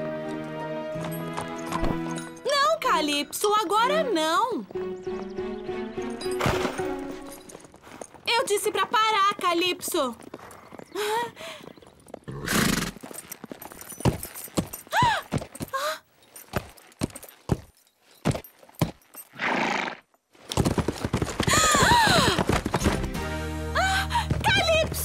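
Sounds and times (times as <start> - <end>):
hooves clopping: 0.0 - 25.0
horses whinnying: 10.2 - 13.2, 19.3 - 20.0.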